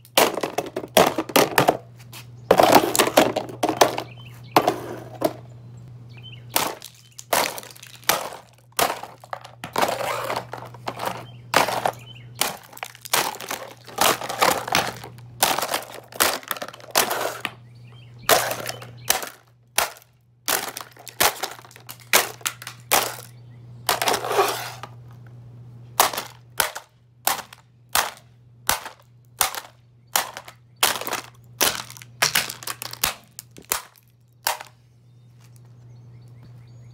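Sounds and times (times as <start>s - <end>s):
plastic pieces clattering: 0.0s - 1.8s, 6.6s - 17.5s, 18.3s - 23.3s, 23.9s - 25.0s, 26.0s - 34.8s
plastic crunching: 0.0s - 1.9s, 2.5s - 5.4s, 6.5s - 17.6s, 18.2s - 25.0s, 26.0s - 34.8s
golf club smashing plastic: 0.2s - 1.8s, 2.5s - 4.0s, 6.6s - 17.5s, 18.3s - 23.3s, 23.9s - 24.9s, 26.0s - 34.7s.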